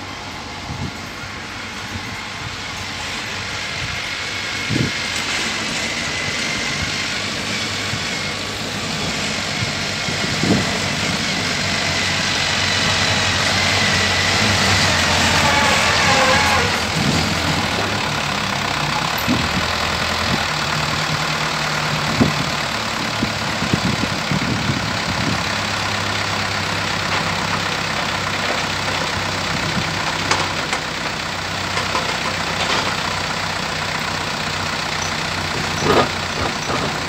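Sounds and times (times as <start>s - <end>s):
excavator engine running: 0.0s - 37.0s
truck engine running: 0.0s - 37.0s
sharp knocks and clanks: 35.0s - 37.0s.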